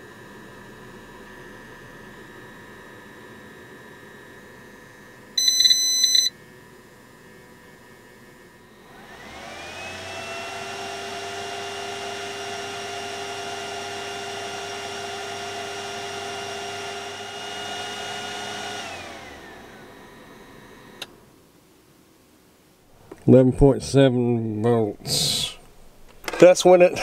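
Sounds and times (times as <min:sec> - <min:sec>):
cooling fan whirring whine: 0:00.0 - 0:27.0
short loud electronic beep: 0:05.4 - 0:06.3.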